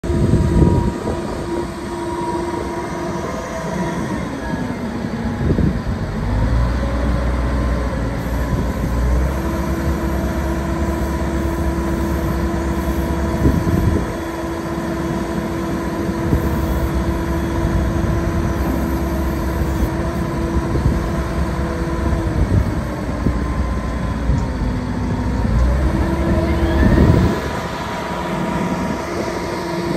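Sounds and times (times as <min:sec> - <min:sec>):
wheel loader diesel engine: 0:00.0 - 0:29.9.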